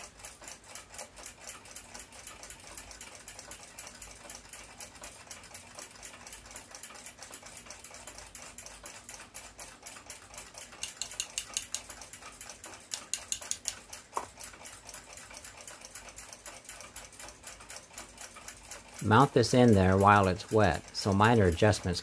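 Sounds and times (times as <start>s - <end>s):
faint clock ticking: 0.0s - 22.0s
metal rod clicking and tapping: 10.8s - 11.9s, 12.9s - 14.3s
quick clicks: 10.8s - 11.9s, 12.9s - 13.8s.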